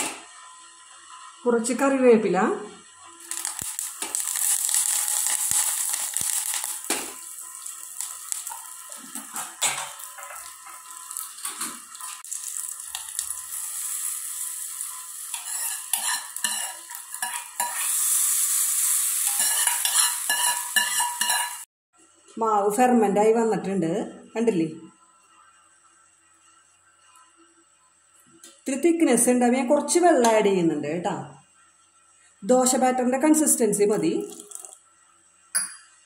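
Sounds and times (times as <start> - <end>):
spices sizzling in oil: 0.0 - 21.7, 33.7 - 35.0
spoon scraping pan: 3.3 - 12.2, 12.9 - 18.5, 19.1 - 21.7
spoon clinking against pan: 19.3 - 21.6, 35.5 - 36.0.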